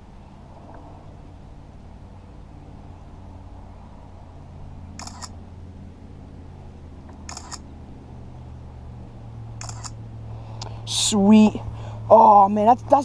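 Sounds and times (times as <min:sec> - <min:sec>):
camera shutter clicking: 0:05.0 - 0:05.3, 0:07.3 - 0:07.6, 0:09.6 - 0:10.0.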